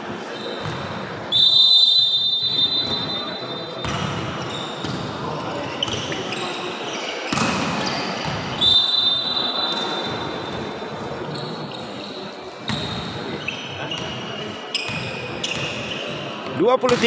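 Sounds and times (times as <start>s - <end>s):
echoing crowd noise: 0.0s - 17.0s.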